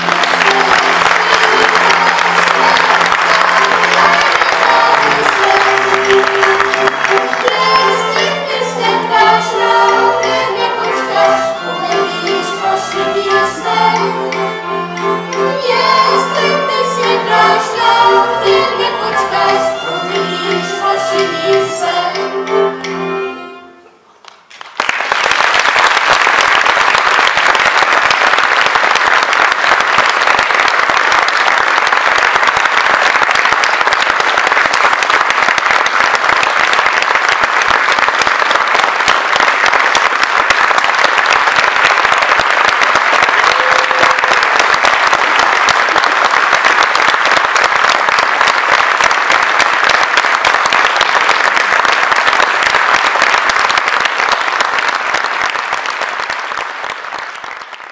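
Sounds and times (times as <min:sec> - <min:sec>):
audience applause: 0:00.0 - 0:20.0, 0:24.2 - 0:57.9
children's choir singing: 0:00.0 - 0:24.0, 0:43.3 - 0:45.7.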